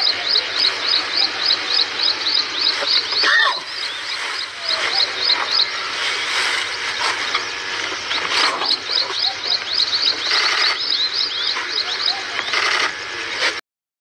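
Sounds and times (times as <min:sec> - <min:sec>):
bird chirping: 0:00.0 - 0:12.9
steady outdoor hiss: 0:00.0 - 0:13.6.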